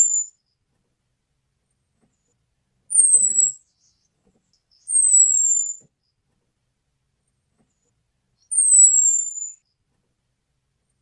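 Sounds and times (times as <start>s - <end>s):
thrush high whistling call: 4.9s - 5.8s, 8.5s - 9.6s.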